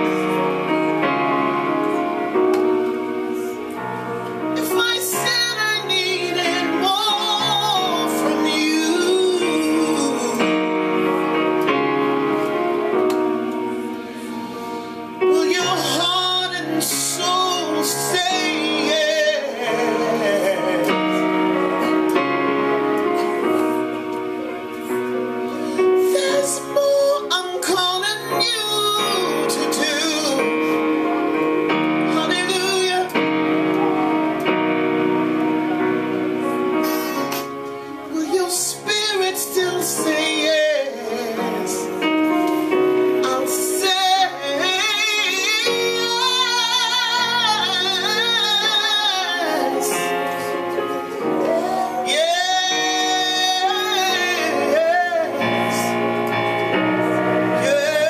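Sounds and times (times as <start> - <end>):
electronic keyboard chords: 0.0 - 58.0
woman singing with vibrato: 4.6 - 10.4, 43.2 - 55.9.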